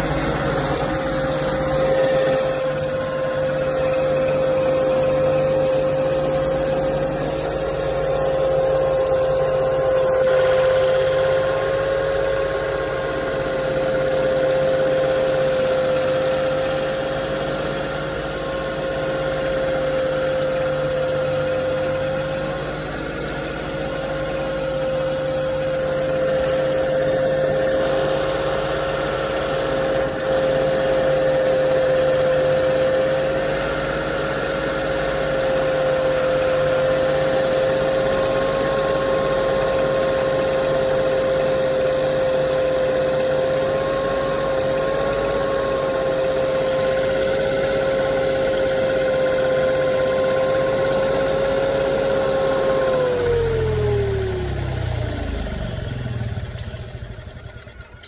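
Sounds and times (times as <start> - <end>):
steady high hum: 0.0 - 17.2
generator engine running: 0.0 - 58.0.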